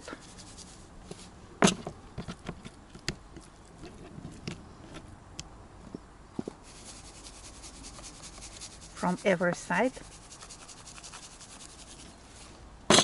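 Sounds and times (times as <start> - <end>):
salt shaker shaking: 0.0 - 0.9, 6.6 - 12.1.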